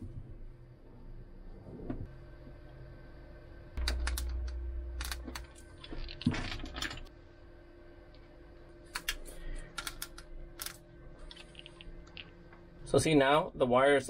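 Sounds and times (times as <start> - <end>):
low handling rumble: 0.0 - 7.1.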